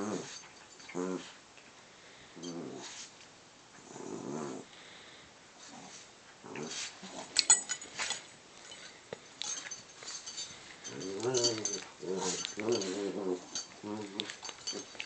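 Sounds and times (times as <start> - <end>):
small dogs growling: 0.0 - 1.4, 2.4 - 3.0, 3.8 - 4.7, 5.6 - 7.4, 10.9 - 15.0.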